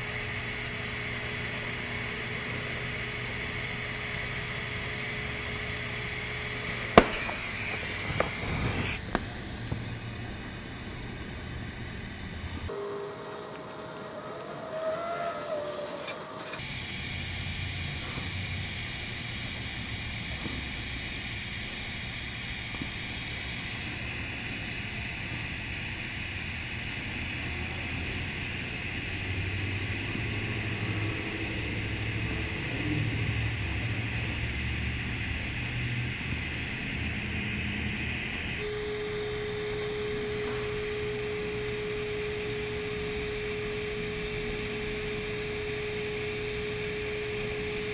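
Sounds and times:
welding arc hissing: 0.0s - 12.7s, 16.5s - 47.9s
steady single tone: 6.9s - 13.5s, 22.8s - 47.9s.

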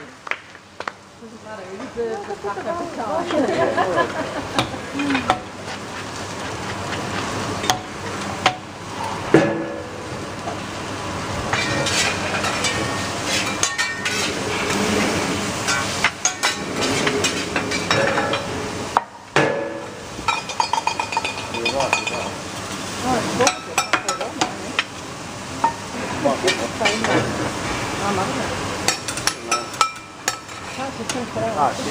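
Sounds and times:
food sizzling on a griddle: 0.0s - 31.9s
metal spatulas scraping a hot plate: 4.6s - 7.9s, 11.5s - 18.6s.

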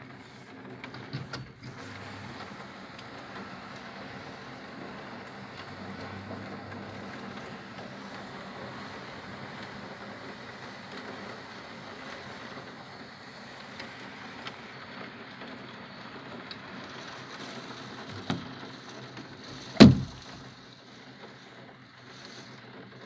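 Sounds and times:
heavy rain hissing: 0.0s - 23.0s
raindrops ticking on window: 0.0s - 23.0s
short thump: 19.8s - 20.5s.

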